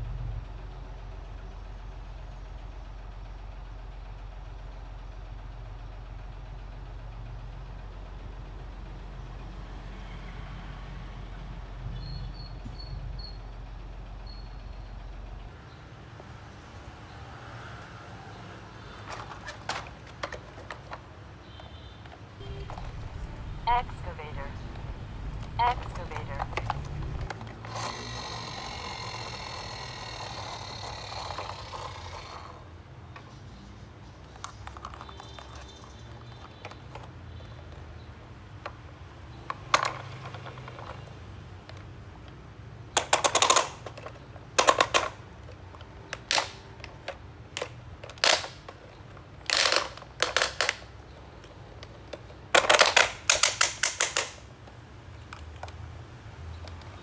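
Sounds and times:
plastic toys clicking and clattering: 18.9s - 21.4s, 22.1s - 23.1s, 25.4s - 33.4s, 34.2s - 57.0s
squeaky plastic scrape: 18.9s - 21.7s, 34.4s - 37.8s.

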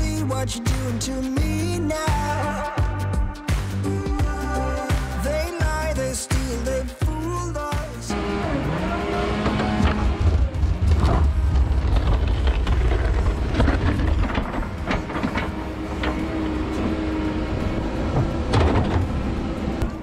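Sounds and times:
excavator diesel engine rumbling: 8.1s - 20.0s
steel bucket scraping snow: 8.8s - 19.8s.

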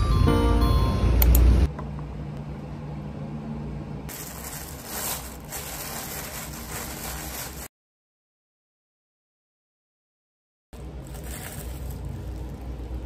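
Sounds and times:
low room hum: 0.0s - 7.7s, 10.8s - 13.0s
plastic bag crinkling: 4.1s - 7.7s, 10.8s - 13.0s.

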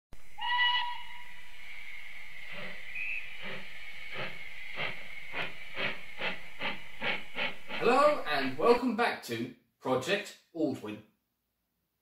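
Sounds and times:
steam hiss: 0.2s - 8.8s
steam whistle: 0.4s - 1.5s
locomotive exhaust chuffs: 2.2s - 8.8s.

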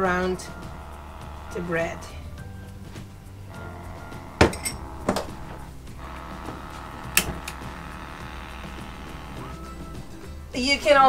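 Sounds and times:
hard objects clicking: 3.5s - 9.4s.

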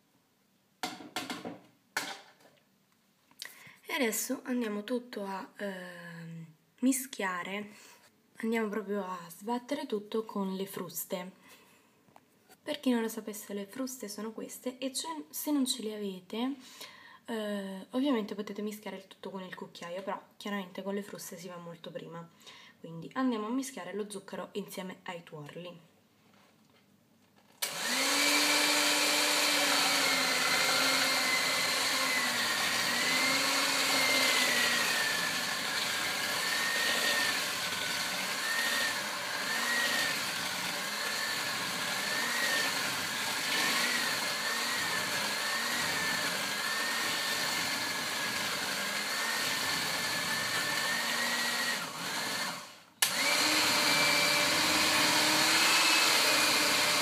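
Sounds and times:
electric hand mixer whining: 27.6s - 57.0s
mixer switch click: 53.0s - 53.2s.

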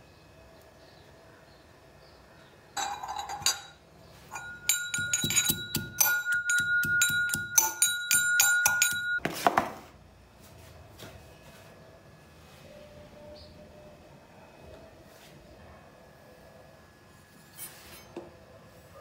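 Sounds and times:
metal pestle clanking in mortar: 2.8s - 9.3s
short scrape: 17.4s - 18.1s.

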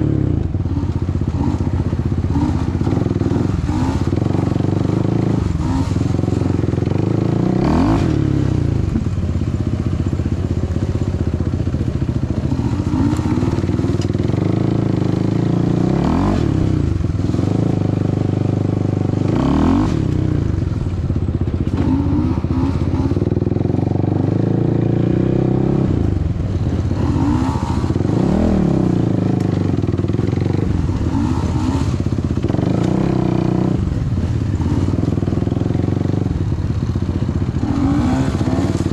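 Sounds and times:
quad bike engine revving: 0.0s - 38.9s.

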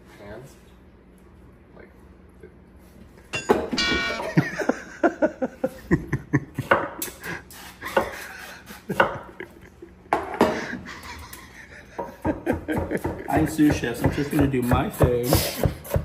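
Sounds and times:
metal clanks: 3.3s - 4.5s
pan and lid struck ringing: 3.3s - 4.6s
people laughing: 4.1s - 14.3s.

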